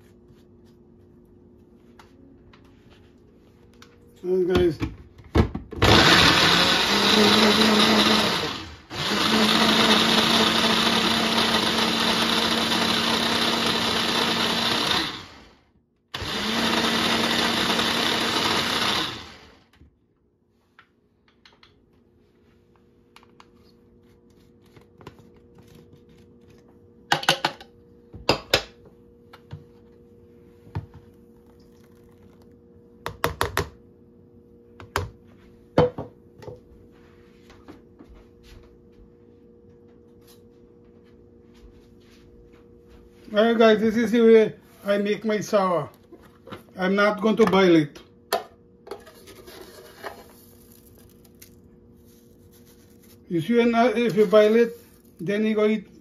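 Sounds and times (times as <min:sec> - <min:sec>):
electric blender running: 0:05.8 - 0:19.8.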